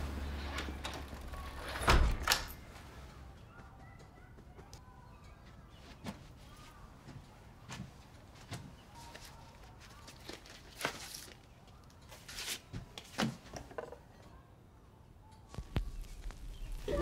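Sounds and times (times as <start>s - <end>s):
quiet footsteps: 2.5s - 10.5s, 15.4s - 17.0s.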